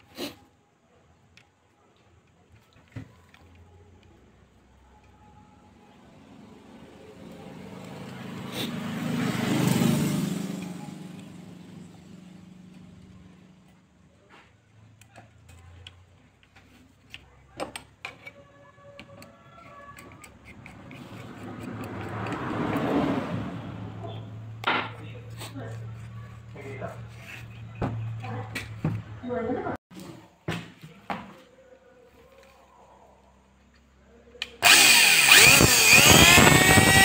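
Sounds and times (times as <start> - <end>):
motor vehicle passing by: 5.9 - 14.5, 20.4 - 29.8
metal parts clicking and knocking: 19.0 - 22.8.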